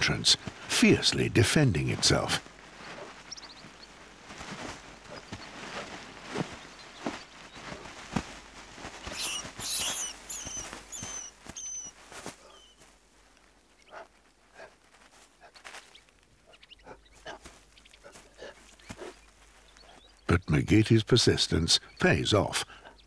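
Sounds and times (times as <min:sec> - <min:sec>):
paws scratching in dry soil: 0:00.0 - 0:20.8
mole rat squeaking: 0:09.1 - 0:12.8.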